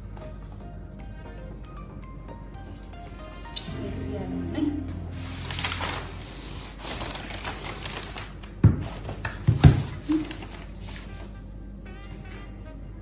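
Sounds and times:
packaging rustling: 5.2 - 11.3.

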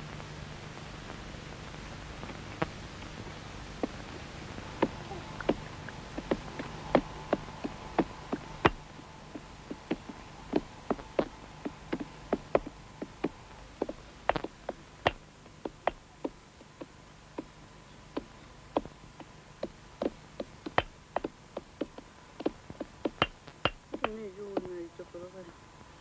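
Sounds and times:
film soundtrack crackle: 0.0 - 17.6
faint steady hum: 0.0 - 26.0.

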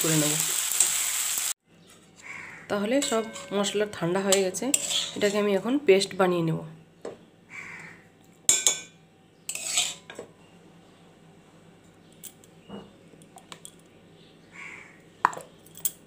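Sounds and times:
utensils clattering: 2.8 - 5.6, 8.5 - 8.9, 9.5 - 10.3
utensils clinking and knocking: 2.9 - 5.4.

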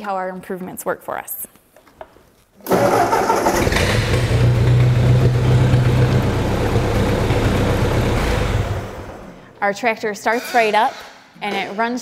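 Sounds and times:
tractor engine running: 2.7 - 9.4.

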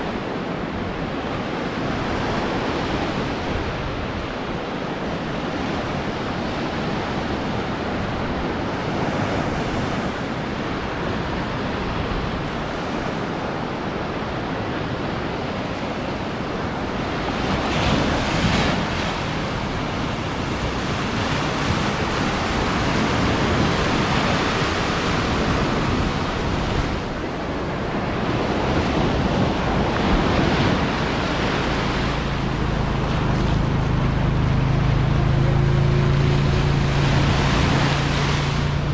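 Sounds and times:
surf breaking on beach: 0.0 - 38.9
wind buffeting microphone: 0.0 - 38.9
low steady hum: 27.0 - 38.9.

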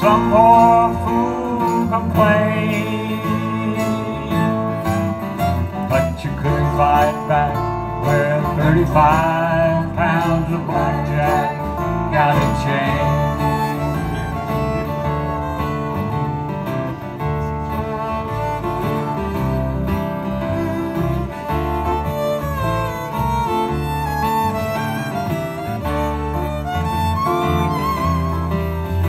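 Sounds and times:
fiddle playing lead: 0.0 - 29.0
strummed acoustic guitars: 0.0 - 29.0.

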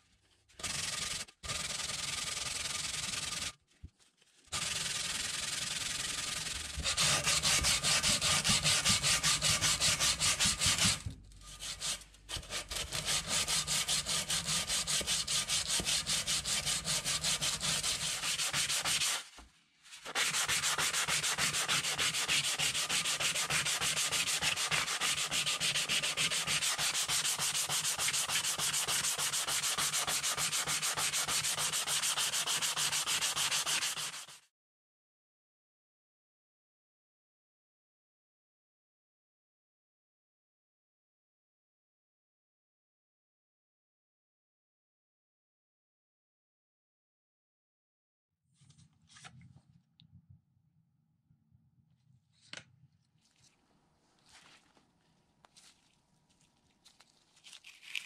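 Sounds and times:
sandpaper scratching on metal: 0.6 - 3.5, 4.5 - 19.4, 20.0 - 34.4.

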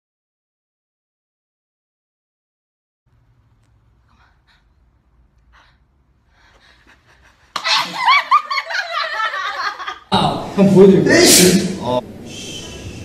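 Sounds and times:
woman giggling: 6.6 - 10.1.

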